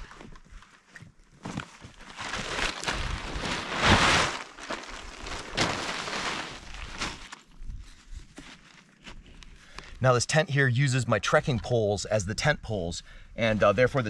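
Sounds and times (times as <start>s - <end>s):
nylon tent fabric rustling: 0.0s - 9.3s.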